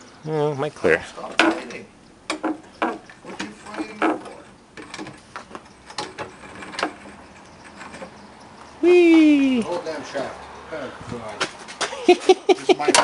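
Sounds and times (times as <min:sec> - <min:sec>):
light metal clicks and clunks: 0:01.2 - 0:08.8.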